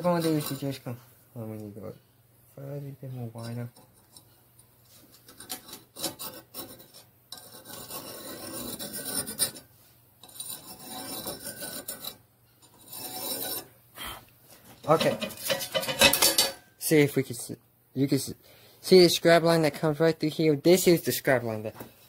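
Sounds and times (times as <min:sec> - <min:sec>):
metal scraping on steel: 0:00.0 - 0:00.9, 0:04.9 - 0:13.8, 0:14.8 - 0:16.7.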